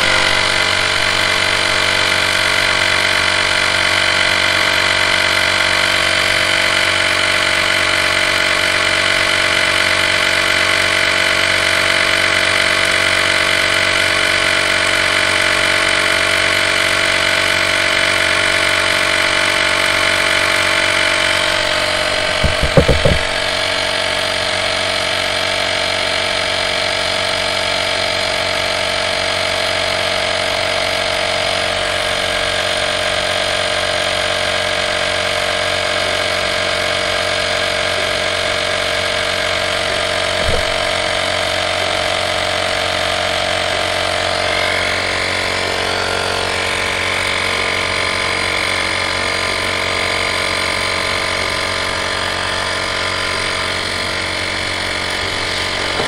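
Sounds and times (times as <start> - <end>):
electric air compressor running: 0.0 - 56.0
knocks: 21.5 - 23.7, 39.9 - 41.2.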